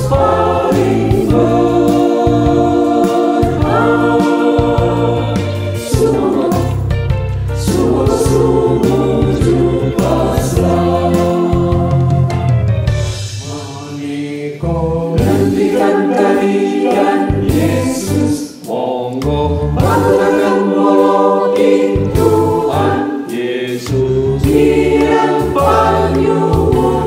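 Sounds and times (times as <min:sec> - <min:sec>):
mixed choir singing a hymn: 0:00.0 - 0:27.0.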